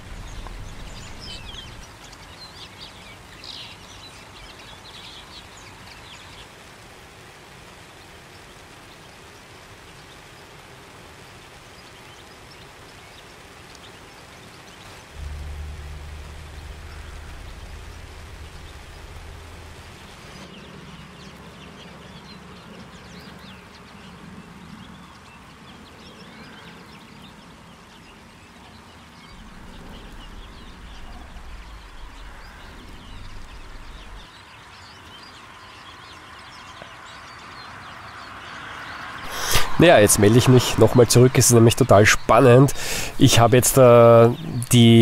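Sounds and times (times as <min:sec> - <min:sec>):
low rumble: 0:00.0 - 0:01.9, 0:15.2 - 0:20.5, 0:29.3 - 0:34.3
finches twittering: 0:00.0 - 0:06.4, 0:11.7 - 0:45.0
rain hiss: 0:00.0 - 0:45.0.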